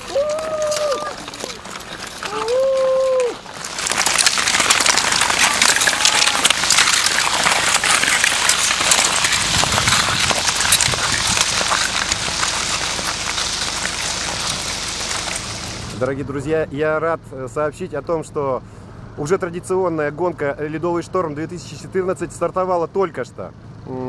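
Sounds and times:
skate blades scraping on ice: 0.0s - 16.1s.

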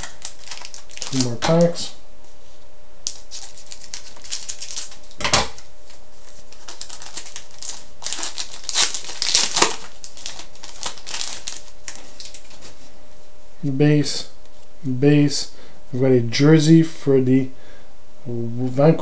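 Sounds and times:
cards rustling and clicking: 0.0s - 1.8s, 3.1s - 5.1s, 5.9s - 12.8s
wrapper crinkling: 0.0s - 1.8s, 3.0s - 5.2s, 5.9s - 12.9s
scissors snipping wrapper: 6.6s - 12.6s.

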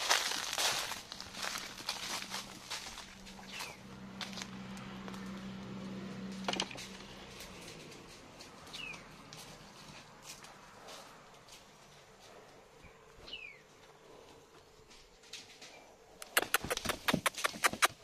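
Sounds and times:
horse hooves on sand: 0.0s - 15.5s, 16.2s - 18.0s
bird chirp: 3.4s - 3.8s, 8.6s - 9.1s, 12.8s - 13.8s.

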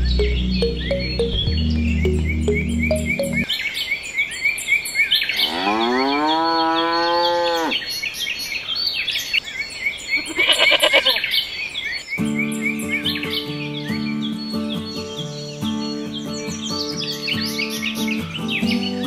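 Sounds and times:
music: 0.0s - 3.5s, 12.2s - 19.0s
birds chirping: 0.0s - 5.6s, 6.2s - 19.0s
cow mooing: 5.4s - 7.8s.

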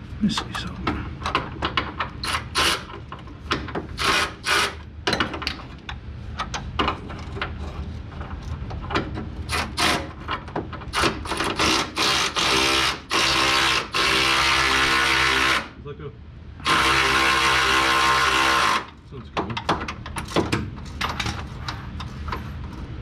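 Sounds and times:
motorized ratchet wrench bursts: 16.6s - 18.9s.

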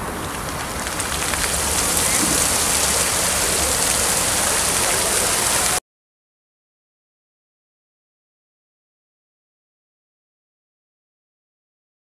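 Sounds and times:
fountain water splashing: 0.0s - 5.8s.

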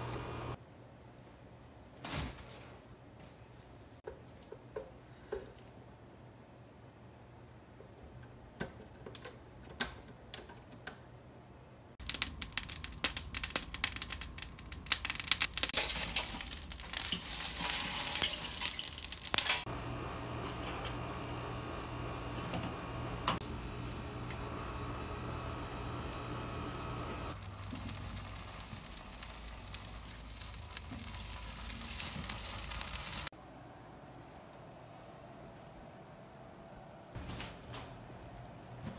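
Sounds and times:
rotisserie motor hum: 0.0s - 0.6s, 19.3s - 33.3s
dense crackling: 12.0s - 19.7s, 26.0s - 33.3s
hissing sizzle: 12.0s - 33.3s.

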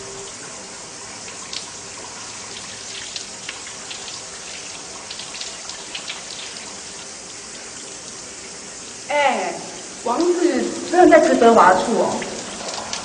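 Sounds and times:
water drips and splashes: 0.0s - 13.0s
water running: 0.0s - 13.0s.

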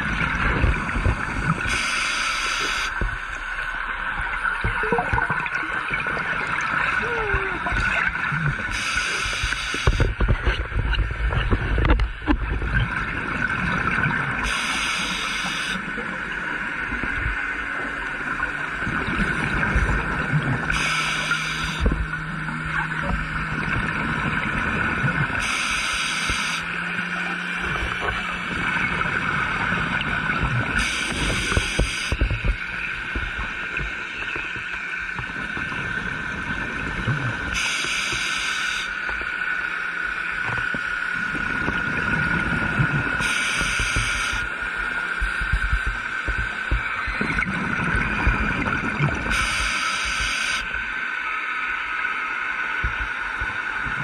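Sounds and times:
exhaled bubbles underwater: 0.0s - 54.0s
regulator hiss: 1.6s - 3.4s, 8.7s - 10.1s, 14.4s - 15.8s, 20.7s - 21.9s, 25.4s - 26.7s, 30.8s - 32.2s, 37.6s - 39.0s, 43.2s - 44.7s, 49.3s - 50.8s.

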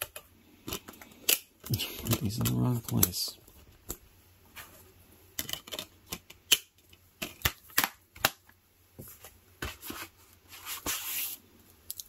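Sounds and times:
plastic disc case clicking: 0.0s - 3.2s, 5.4s - 8.5s.

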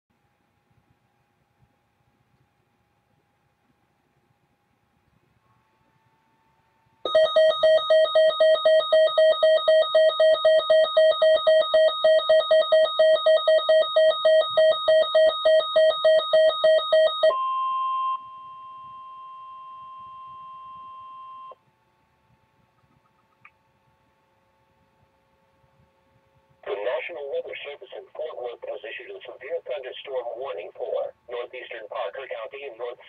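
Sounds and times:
rapidly pulsing electronic beep: 7.1s - 17.3s
steady alarm tone: 7.1s - 21.6s.

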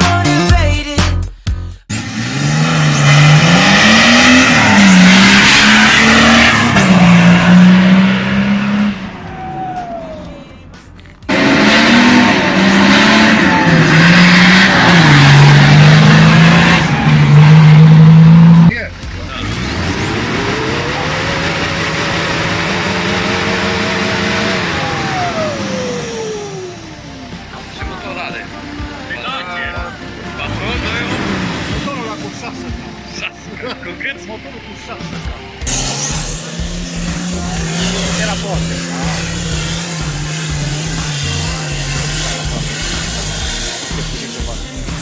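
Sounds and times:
diesel engine accelerating past: 1.9s - 27.9s, 30.0s - 33.3s.

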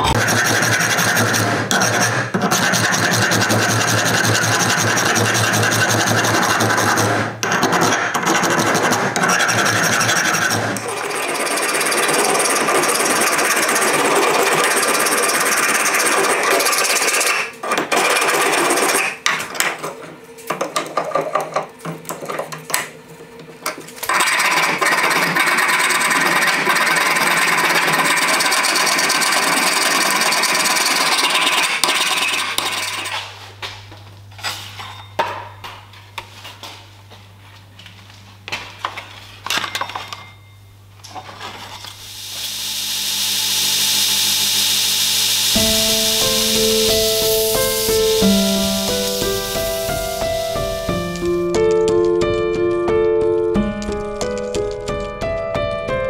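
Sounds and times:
file rasping on steel: 0.0s - 19.2s.

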